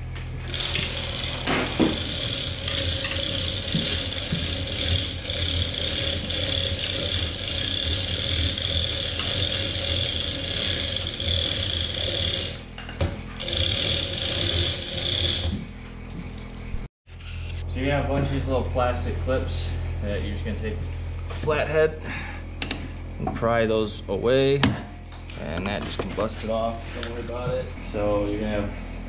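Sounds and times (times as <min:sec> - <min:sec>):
chain hoist rattling and clicking: 0:00.5 - 0:12.8, 0:13.4 - 0:15.7.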